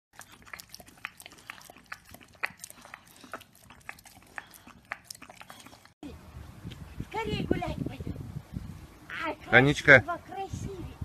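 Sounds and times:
dog licking and lapping: 0:00.2 - 0:06.0.

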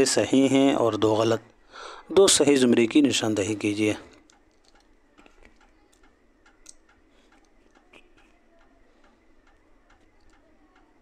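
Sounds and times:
faint regular ticking: 0:00.0 - 0:11.0.

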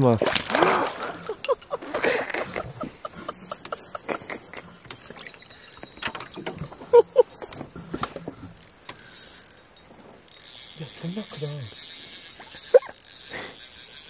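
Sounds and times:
knocks and clatter in canoe: 0:00.0 - 0:09.0.

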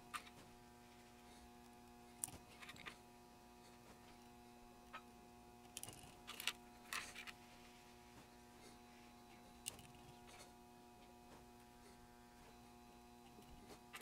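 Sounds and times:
small components clicking and scratching: 0:00.0 - 0:03.1, 0:04.0 - 0:07.7, 0:09.3 - 0:11.1, 0:13.2 - 0:14.0
faint steady hum: 0:00.0 - 0:14.0.

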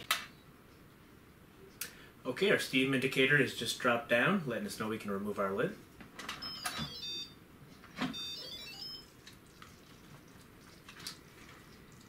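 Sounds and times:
descending electronic chime: 0:08.2 - 0:09.1.

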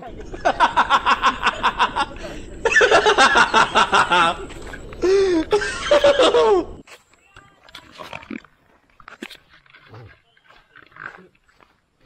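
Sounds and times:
loud laughter: 0:00.0 - 0:06.8.

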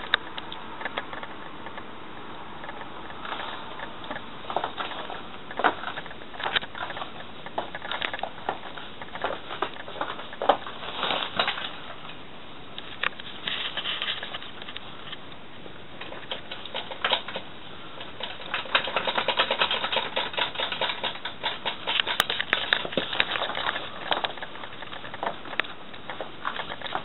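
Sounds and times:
plastic raincoat crinkling: 0:04.5 - 0:12.0.

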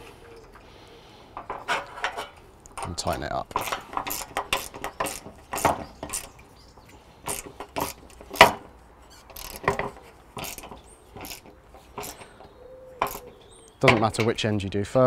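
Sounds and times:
spanner clicking on metal: 0:03.5 - 0:06.4, 0:07.2 - 0:12.3, 0:13.0 - 0:13.4.

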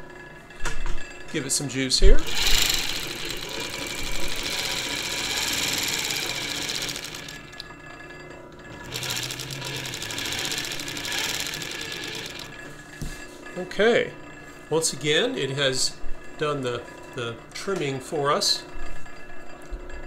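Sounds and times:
sewing machine stitching clatter: 0:02.2 - 0:07.6, 0:08.7 - 0:12.6.

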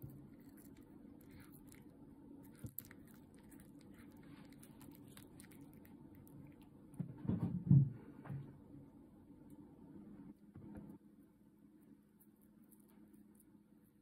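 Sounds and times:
cat gnawing hard treat: 0:00.0 - 0:07.0.

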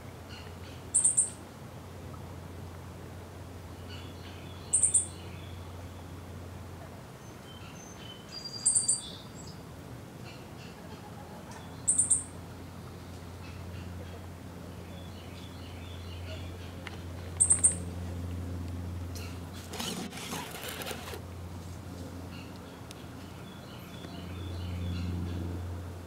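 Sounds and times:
faint lower bird chirps: 0:00.3 - 0:01.4, 0:03.9 - 0:05.6, 0:07.4 - 0:09.6, 0:11.8 - 0:12.3.

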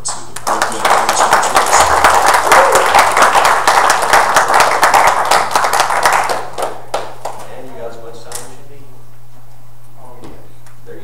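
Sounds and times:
crowd applauding: 0:00.3 - 0:07.5.

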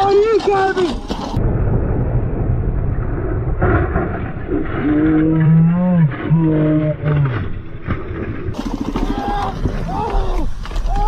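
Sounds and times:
man shouting: 0:09.0 - 0:11.0.

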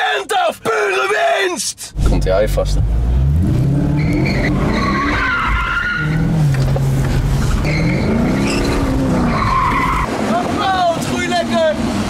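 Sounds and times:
car engine revving: 0:01.9 - 0:12.0
tyres squealing: 0:04.0 - 0:06.6, 0:07.6 - 0:10.6.

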